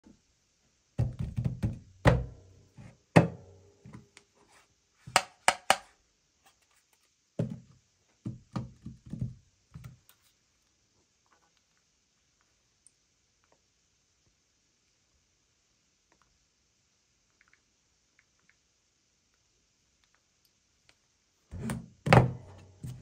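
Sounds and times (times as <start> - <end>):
knocks and thunks on tabletop: 1.0 - 2.4, 3.2 - 4.0, 7.4 - 7.7, 8.3 - 10.0, 21.6 - 23.0.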